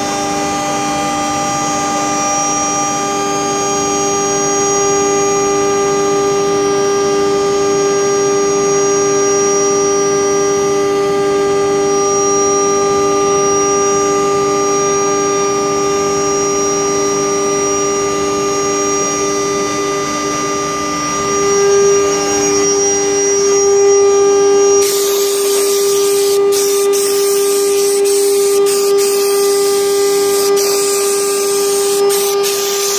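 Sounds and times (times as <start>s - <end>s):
cnc router spindle whine: 0.0s - 32.9s
cutter milling wood: 19.2s - 32.9s.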